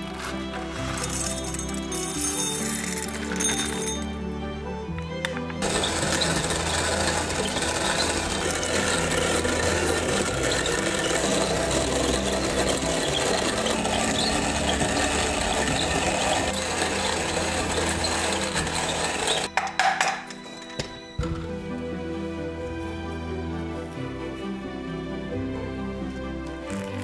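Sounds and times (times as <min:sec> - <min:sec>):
electric hand blender running: 0:05.6 - 0:19.5.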